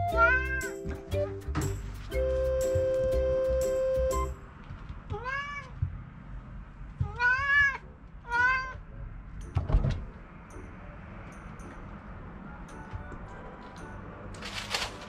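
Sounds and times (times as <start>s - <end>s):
cat meowing: 0.2s - 0.8s, 5.1s - 5.9s, 7.0s - 8.9s.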